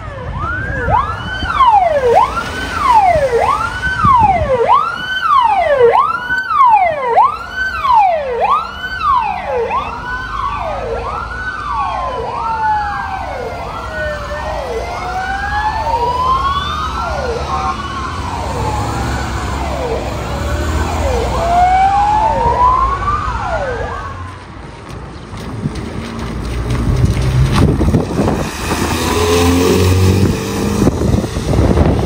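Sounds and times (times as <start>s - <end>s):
police siren yelp: 0.0s - 24.4s
slow gliding siren tone: 0.0s - 24.4s
engine rumble: 0.3s - 32.0s.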